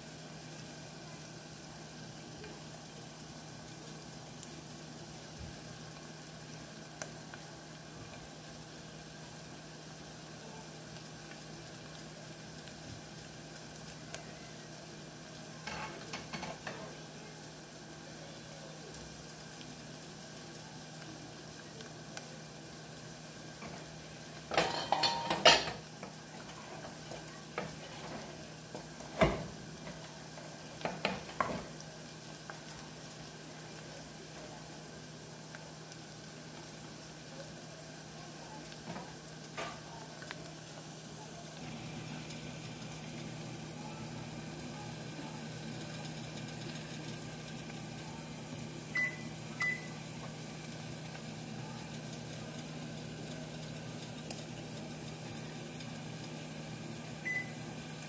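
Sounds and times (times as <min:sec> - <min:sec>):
vegetables sizzling in a pot: 0:00.0 - 0:58.0.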